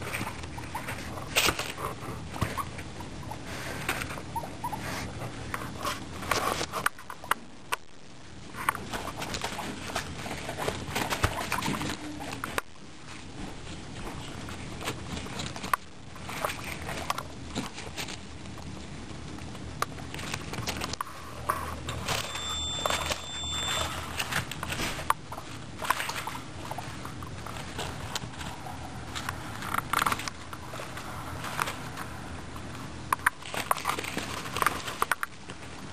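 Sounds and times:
guinea pigs crunching carrot: 0.0s - 35.9s
bedding rustling: 8.4s - 32.0s.

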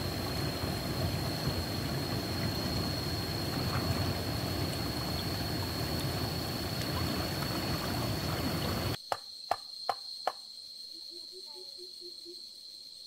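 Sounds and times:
stream water rushing: 0.0s - 9.0s.

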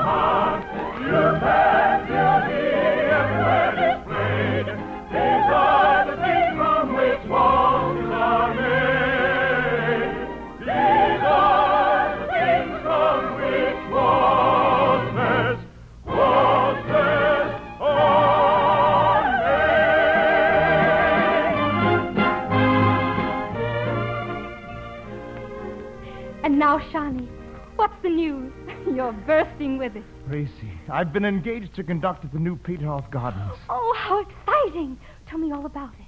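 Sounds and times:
operetta singing with vibrato: 0.0s - 26.6s
orchestral accompaniment: 0.0s - 32.8s.

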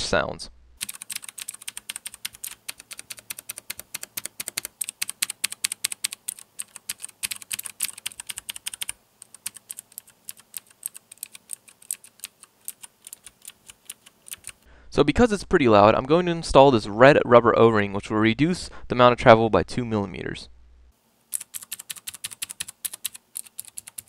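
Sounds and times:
fast typing on mechanical keyboard: 0.8s - 14.6s, 21.3s - 24.0s.

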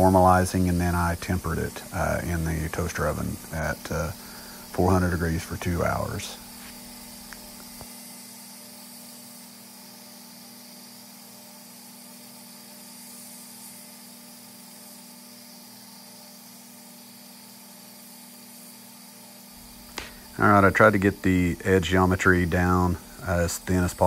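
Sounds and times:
belt grinder humming: 0.0s - 8.7s, 19.5s - 24.0s
steel hissing on grinding belt: 0.0s - 24.0s.

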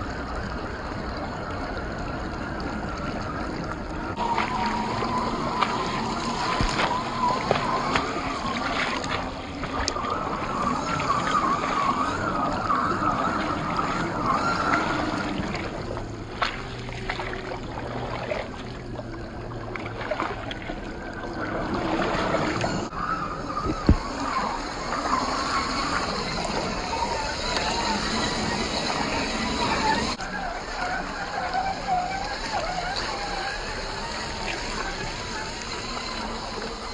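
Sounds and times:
electric motor whining: 0.0s - 17.8s, 20.9s - 36.9s
tyres splashing through muddy water: 4.1s - 19.0s.

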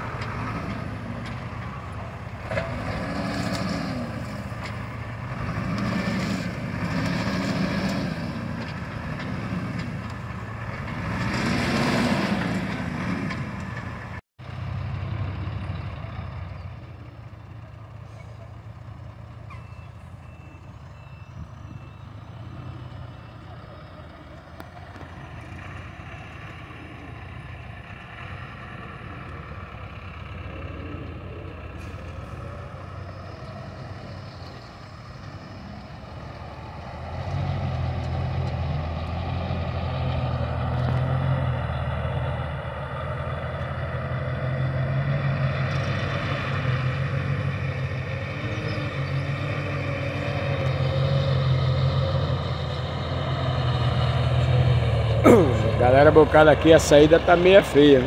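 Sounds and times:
truck engine running: 50.6s - 58.0s.

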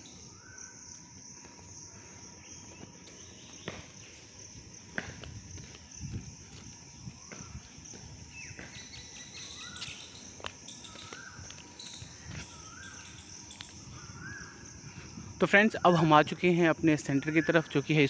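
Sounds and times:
insects droning: 0.0s - 18.0s
footsteps on stone paving: 2.6s - 12.7s.

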